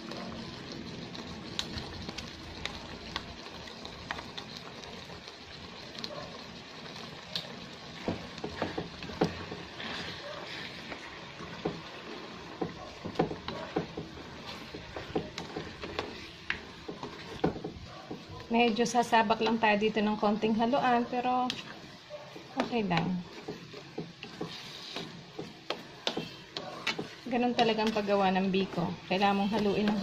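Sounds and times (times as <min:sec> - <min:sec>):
wooden spatula scraping pan: 0:08.0 - 0:30.0.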